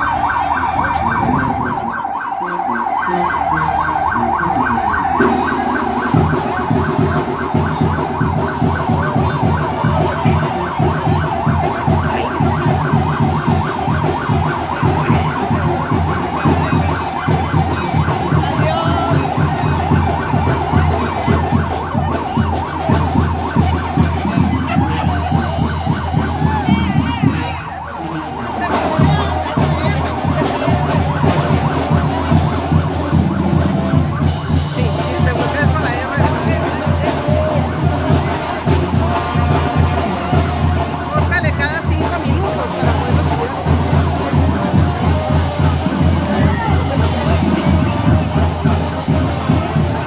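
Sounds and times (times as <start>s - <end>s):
siren wailing: 0.0s - 50.0s.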